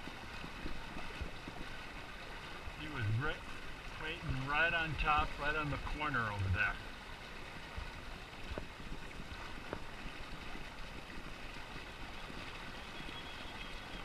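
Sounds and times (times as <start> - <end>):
wind on microphone: 0.0 - 4.4
river current rushing: 0.0 - 14.0.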